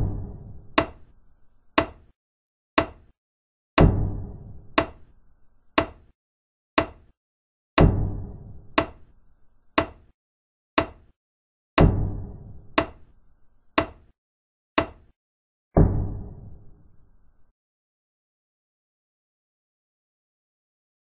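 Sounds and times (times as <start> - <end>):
deep booming hit: 15.8 - 16.4.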